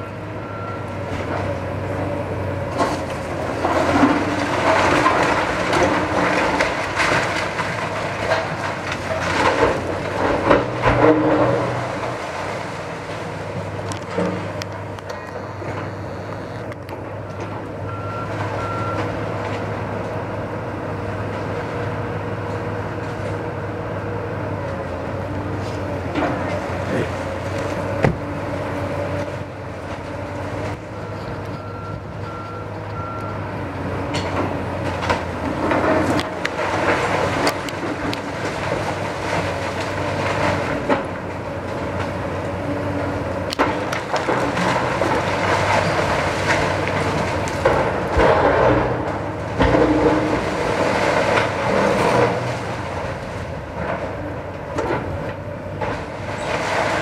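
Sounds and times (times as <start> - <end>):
excavator engine running: 0.0 - 57.0
debris knocking and clattering: 43.5 - 52.8.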